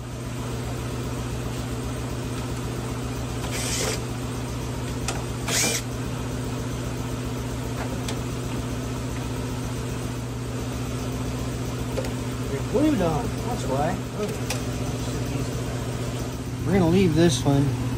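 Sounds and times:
steady low hum: 0.0 - 17.9
cordless drill backing out screws: 3.4 - 4.0, 5.4 - 5.9.

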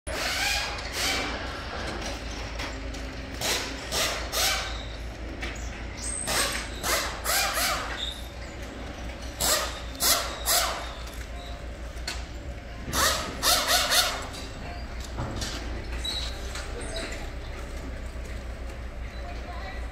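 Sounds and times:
forklift engine humming: 0.1 - 19.9
short squeaks: 3.4 - 17.7.

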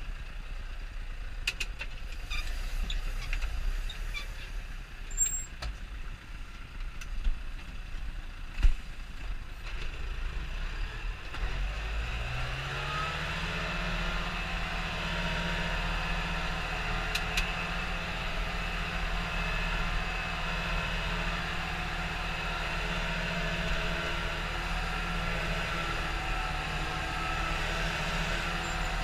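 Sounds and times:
tractor diesel engine running: 11.8 - 29.0.

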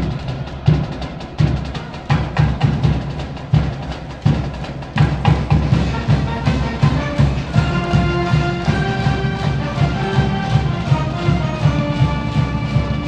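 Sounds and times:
brass notes: 5.7 - 13.0.

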